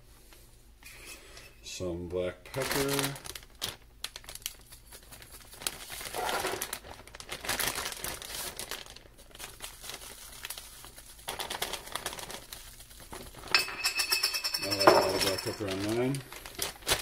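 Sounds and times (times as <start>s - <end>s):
plastic bag crinkling: 2.4s - 13.6s, 14.7s - 17.0s
pepper shaker shaking: 4.4s - 6.0s, 9.6s - 16.2s.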